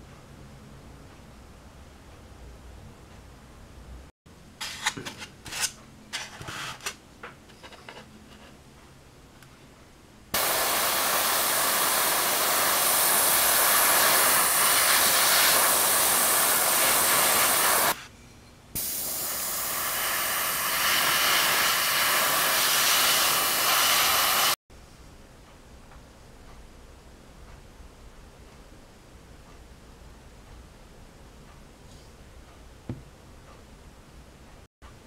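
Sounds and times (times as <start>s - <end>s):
airbrush hissing: 10.4s - 18.0s, 18.8s - 24.6s.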